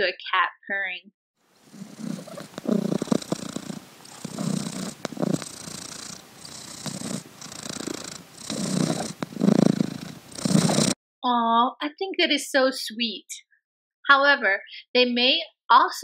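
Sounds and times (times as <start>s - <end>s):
cat purring: 1.6s - 11.0s.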